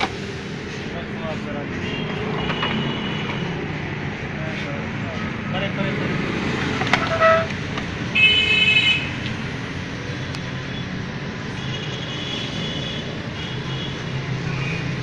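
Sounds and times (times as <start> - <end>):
street traffic rumble: 0.0 - 15.0
vehicle horn tooting: 8.2 - 9.2.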